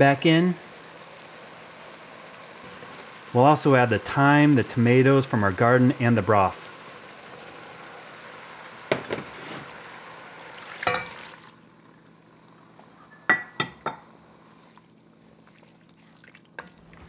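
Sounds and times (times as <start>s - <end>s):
liquid hissing in pot: 0.0s - 11.6s.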